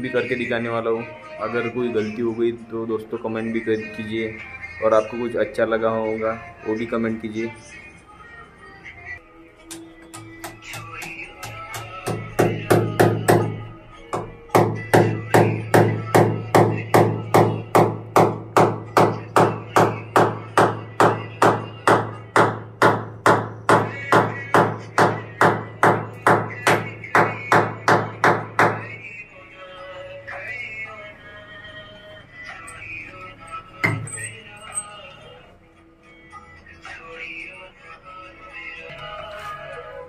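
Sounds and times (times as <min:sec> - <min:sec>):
background music: 0:00.0 - 0:40.0
hammer knocking: 0:09.7 - 0:29.0, 0:33.8 - 0:34.2.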